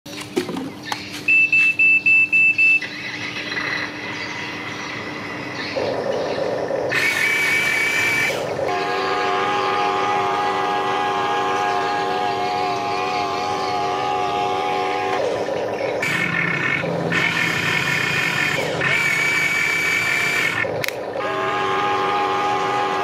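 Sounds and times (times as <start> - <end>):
high electronic beeps: 1.2 - 4.4
simulated engine running: 1.3 - 23.0
held high electronic tone: 5.0 - 23.0.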